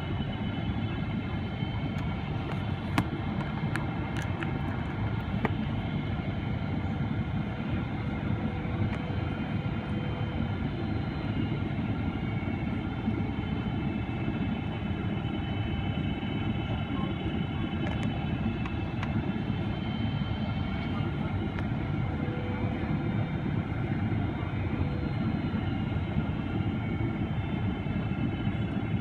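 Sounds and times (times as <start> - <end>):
airliner cabin engine rumble: 0.0 - 29.0.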